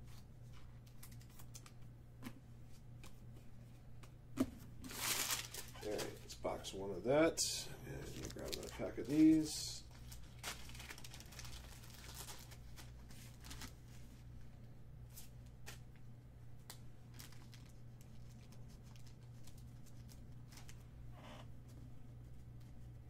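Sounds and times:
low electrical hum: 0.0s - 23.0s
trading cards rustling and ticking: 0.1s - 1.9s, 4.9s - 6.4s, 7.9s - 13.8s, 16.7s - 20.8s.

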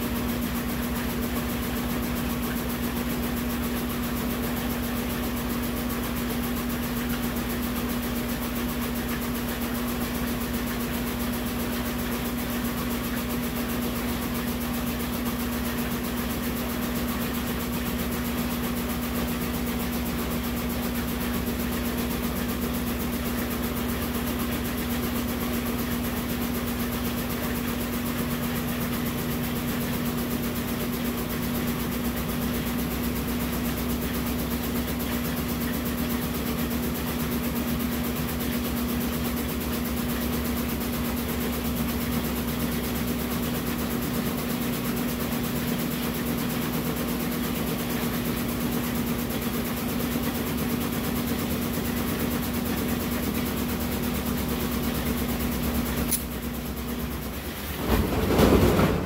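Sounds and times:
washing machine spinning: 0.0s - 59.0s.

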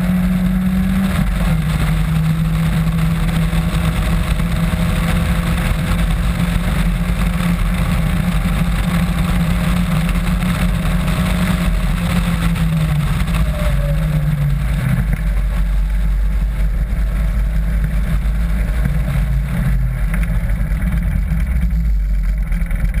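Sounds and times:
car engine running: 0.0s - 23.0s
wind noise rumble: 0.0s - 23.0s.

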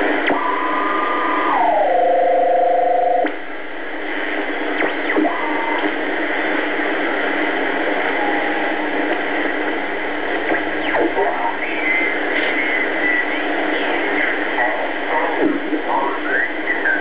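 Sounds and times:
shortwave radio static: 0.0s - 17.0s
steady radio tones: 0.0s - 17.0s
sweeping radio whistles: 5.1s - 5.9s, 8.0s - 8.8s.

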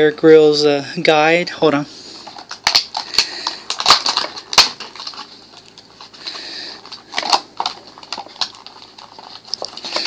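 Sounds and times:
plastic packaging clicks and crinkles: 2.2s - 10.0s.

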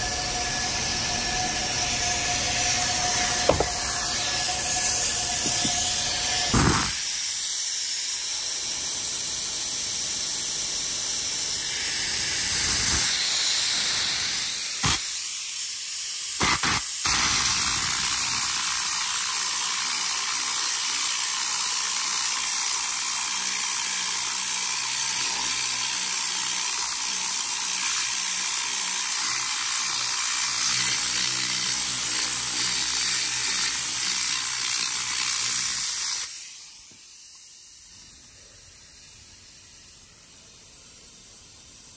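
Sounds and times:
compressed air gun hissing: 0.0s - 21.2s, 33.2s - 41.9s.

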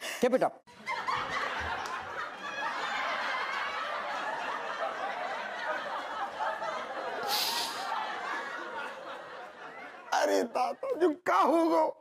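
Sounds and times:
many people laughing: 0.7s - 11.8s
short hissing burst: 7.2s - 7.9s.

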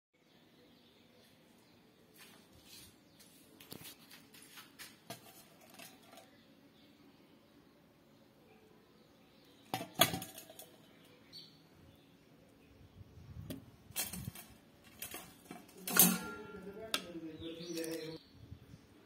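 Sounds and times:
metal kitchenware knocks and clinks: 9.7s - 10.7s, 15.0s - 16.7s.

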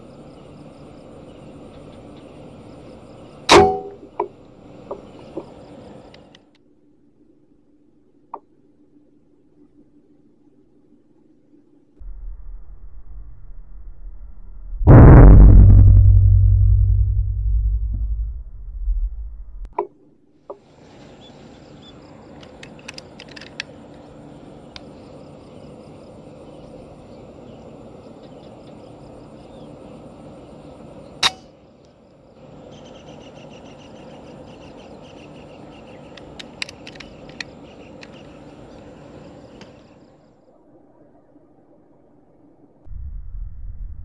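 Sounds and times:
birds: 0.0s - 3.5s, 4.1s - 6.5s, 20.7s - 40.3s
insects chirring: 0.0s - 6.5s, 20.7s - 40.6s
low boom: 12.0s - 19.7s, 42.9s - 44.0s
air rifle clicks and knocks: 22.4s - 23.7s, 36.2s - 38.3s.

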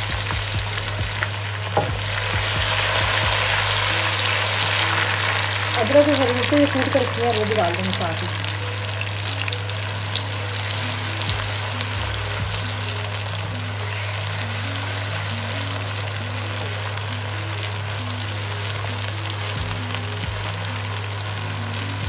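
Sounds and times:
food sizzling in hot oil: 0.0s - 22.0s.

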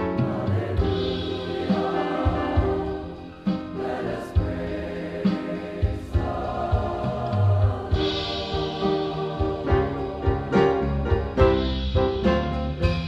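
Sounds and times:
choir singing gospel: 0.0s - 12.6s
drum kit thumps: 0.0s - 13.0s
piano: 0.0s - 13.0s.

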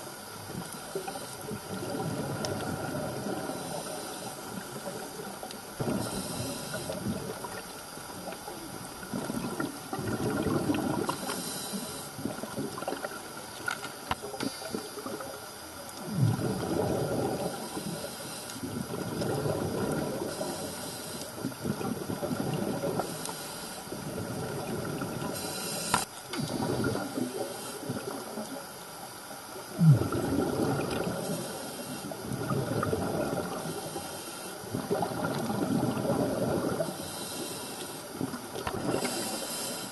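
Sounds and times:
bubbling exhaled air: 0.5s - 8.4s, 9.0s - 13.2s, 16.0s - 28.5s, 29.7s - 39.9s
hissing regulator inhales: 3.4s - 4.6s, 5.8s - 7.1s, 11.1s - 12.2s, 17.3s - 18.7s, 20.2s - 21.4s, 23.0s - 24.0s, 25.3s - 27.9s, 31.1s - 32.2s, 33.5s - 34.6s, 36.8s - 38.2s, 38.9s - 39.9s.

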